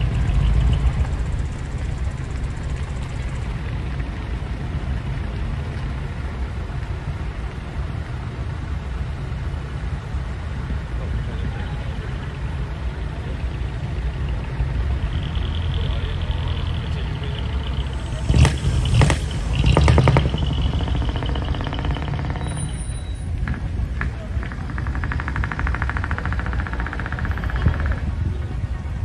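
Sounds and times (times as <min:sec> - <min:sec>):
diesel truck engines rumbling: 0:00.0 - 0:29.0
steady high tone: 0:15.3 - 0:23.2
loud sharp bursts: 0:17.1 - 0:22.9.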